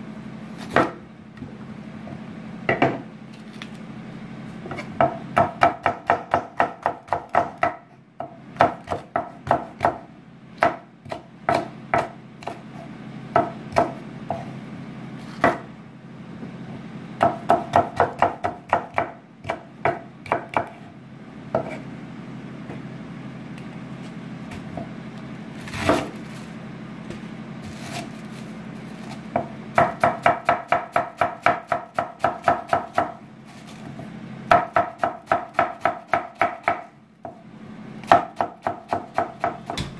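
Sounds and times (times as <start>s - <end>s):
low steady hum: 0.0s - 39.9s
knife chopping on wooden board: 0.6s - 1.0s, 4.7s - 10.0s, 10.6s - 12.6s, 13.4s - 14.5s, 15.3s - 15.7s, 17.2s - 20.9s, 21.5s - 21.8s, 25.7s - 26.2s, 29.3s - 33.2s, 38.0s - 39.9s.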